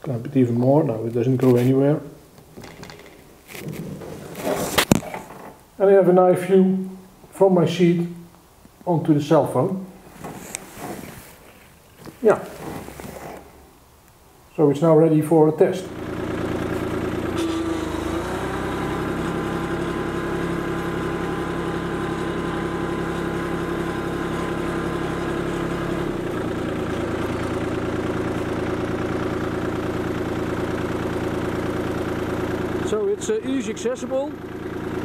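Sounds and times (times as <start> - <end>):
tractor diesel engine running: 15.8 - 35.0.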